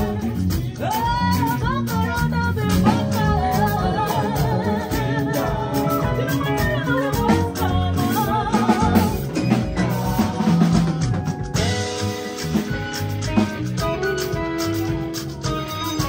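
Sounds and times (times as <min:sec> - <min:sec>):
singers: 0:00.0 - 0:12.1
bass guitar: 0:00.0 - 0:16.0
drums: 0:00.0 - 0:16.0
electric guitar: 0:00.0 - 0:16.0
keyboards: 0:00.0 - 0:16.0.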